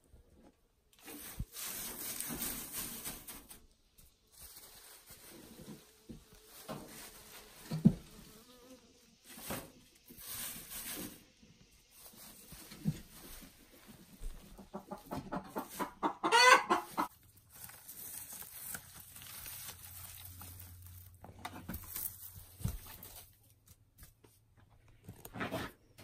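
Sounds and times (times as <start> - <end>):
hen clucking: 14.4 - 17.2.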